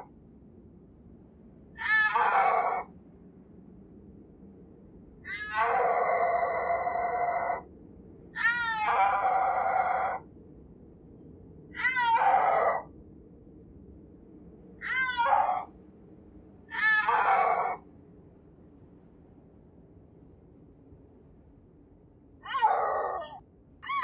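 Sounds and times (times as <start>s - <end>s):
snow leopard calling: 1.8s - 2.9s, 8.4s - 10.2s, 11.8s - 12.8s, 14.8s - 15.7s, 16.7s - 17.8s, 22.4s - 24.0s.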